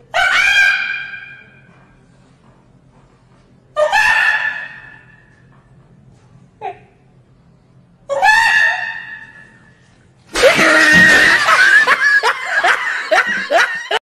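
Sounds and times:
man laughing hysterically: 0:10.4 - 0:14.0.

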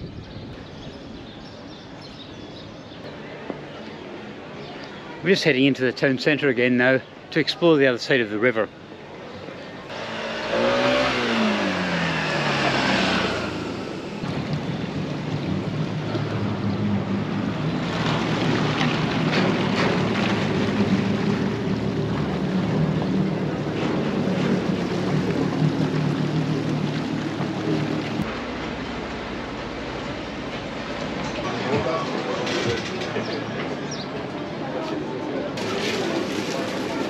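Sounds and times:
jet skis running: 0:08.8 - 0:37.0
outboard motorboats droning: 0:08.8 - 0:37.0
motor vehicle passing by: 0:09.9 - 0:35.0.

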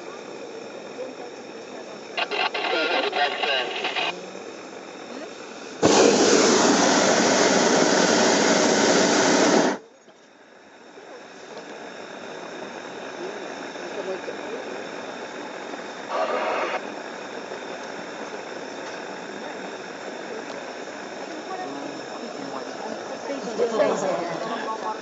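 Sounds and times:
propane burner firing: 0:02.0 - 0:09.8
quiet hiss: 0:02.2 - 0:04.2.

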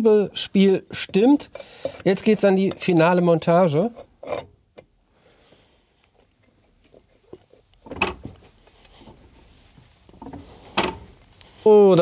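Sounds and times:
metal parts clicking and scraping: 0:03.9 - 0:04.5.

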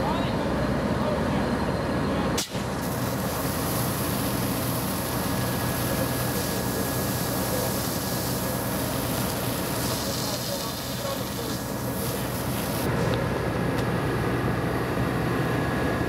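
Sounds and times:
engines and pump humming: 0:00.0 - 0:16.0
fire hose spraying water: 0:02.4 - 0:13.1.

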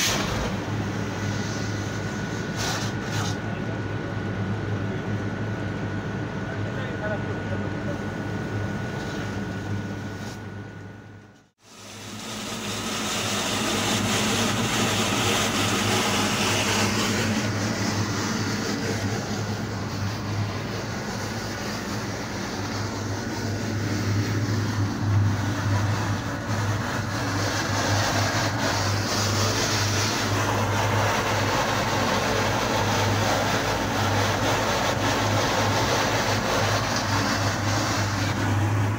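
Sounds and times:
high-pressure water jet spraying: 0:00.0 - 0:03.4, 0:11.6 - 0:38.9
drain machine humming: 0:00.0 - 0:10.1, 0:11.6 - 0:38.9.

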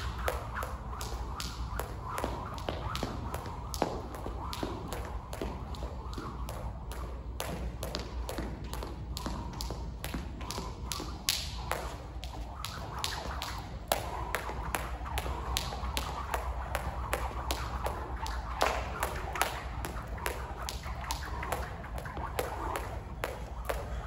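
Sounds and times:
jump rope slapping wooden floor: 0:00.0 - 0:24.0.

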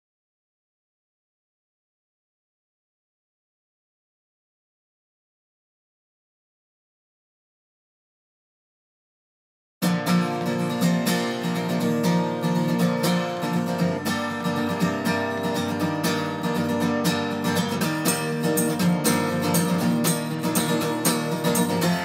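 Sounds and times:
strummed acoustic guitar: 0:09.8 - 0:22.0.

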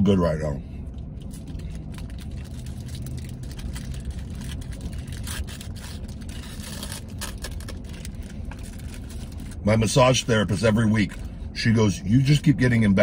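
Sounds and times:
low rumble in truck cab: 0:00.0 - 0:13.0
paper wrapper crinkling: 0:01.2 - 0:09.6.

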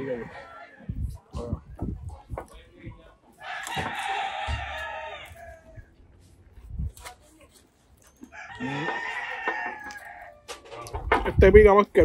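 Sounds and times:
rooster crowing: 0:03.4 - 0:05.9, 0:08.2 - 0:10.8.

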